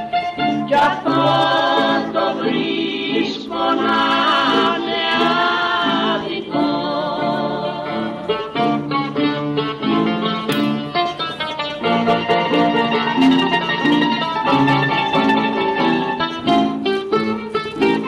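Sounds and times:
bouzouki plucked notes: 0.0s - 18.0s
person singing with vibrato: 0.3s - 8.8s.

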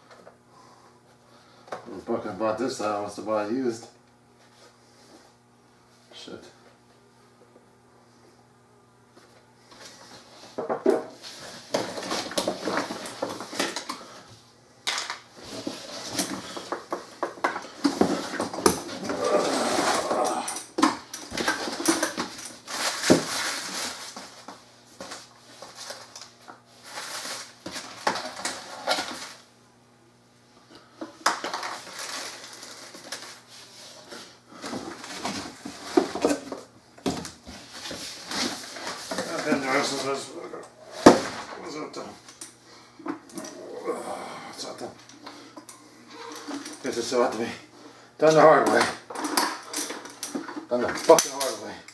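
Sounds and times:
plastic bags rustling: 21.3s - 29.5s, 31.5s - 34.0s.

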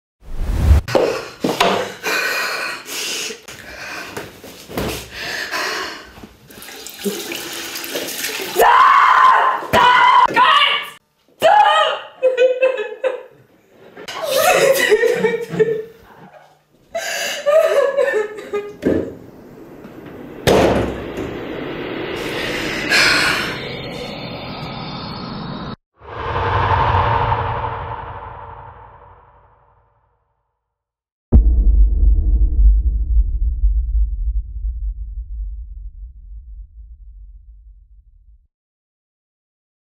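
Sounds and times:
water splashing in a sink: 6.4s - 9.0s
low rumbling drone: 18.4s - 29.8s, 31.4s - 38.4s
cinematic hit: 18.9s - 29.8s, 31.3s - 38.4s.

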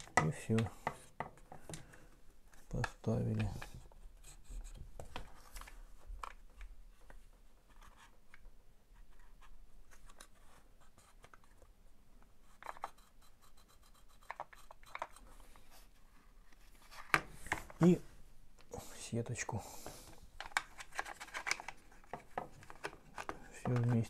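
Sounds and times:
plastic parts scraping and clicking: 0.0s - 4.0s, 12.5s - 13.2s, 14.0s - 15.7s, 19.8s - 24.0s.

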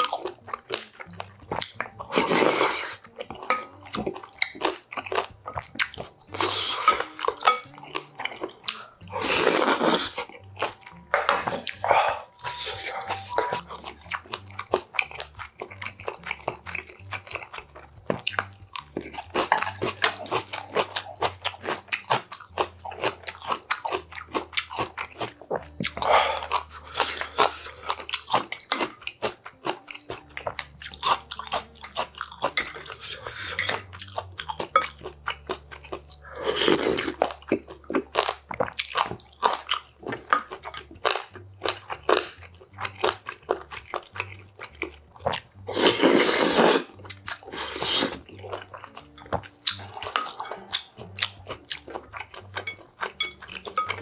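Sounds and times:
chewing and crunching: 0.0s - 54.0s
slurping broth from a spoon: 2.0s - 3.0s, 8.7s - 10.3s, 11.4s - 14.0s, 25.9s - 28.8s, 35.4s - 37.4s, 45.6s - 48.4s.

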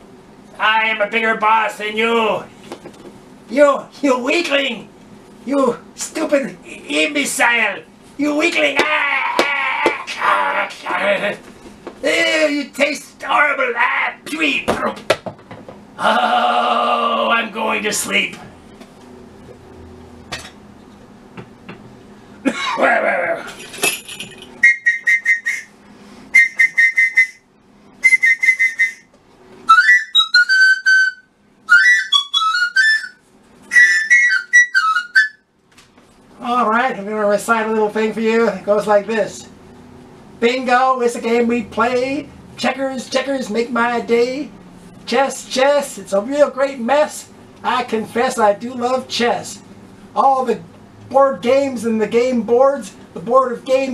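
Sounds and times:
person wailing and groaning: 8.6s - 11.4s, 16.0s - 17.5s, 22.5s - 23.6s
high warbling whistles: 24.6s - 25.8s, 26.4s - 27.4s, 28.0s - 29.1s, 29.7s - 35.4s.

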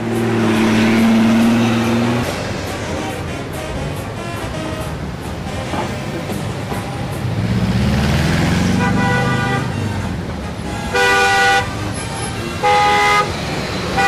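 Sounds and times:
heavy street traffic: 0.0s - 14.0s
large vehicle engine droning: 0.0s - 14.0s
car horn honking: 8.7s - 14.0s.

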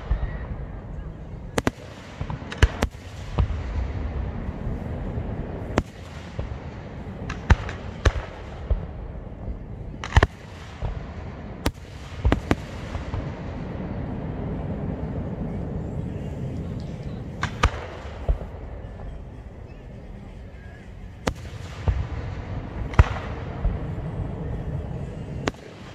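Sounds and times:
fireworks bangs and cracks: 0.0s - 25.9s
low rumble: 0.0s - 25.9s.

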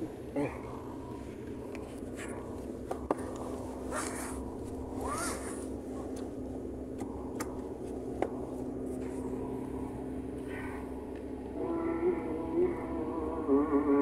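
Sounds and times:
car cabin hum: 0.0s - 14.0s.

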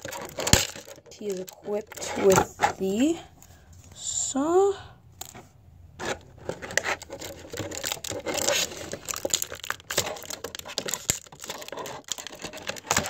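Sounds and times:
toy packaging crinkling: 0.0s - 3.2s, 6.0s - 13.0s.

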